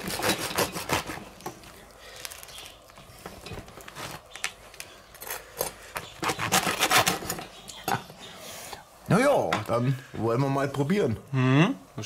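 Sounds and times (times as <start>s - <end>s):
knife sawing crusty bread: 0.0s - 1.3s, 6.2s - 7.4s.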